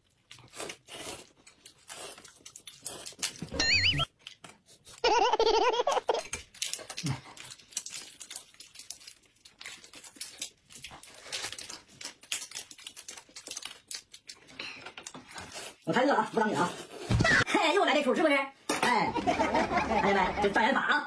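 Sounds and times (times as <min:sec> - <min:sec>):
plastic packets rustling: 0:06.3 - 0:15.8.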